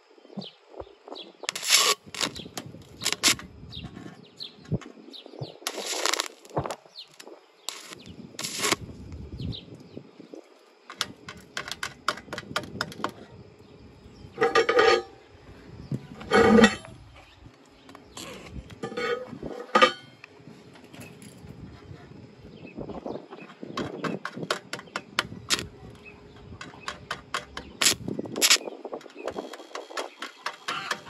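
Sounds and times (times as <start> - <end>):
rapid clicks: 1.5 - 3.5, 5.7 - 8.8, 26.6 - 31.0
welding arc crackling: 1.5 - 3.6, 5.5 - 9.3, 25.1 - 25.8, 26.9 - 31.0.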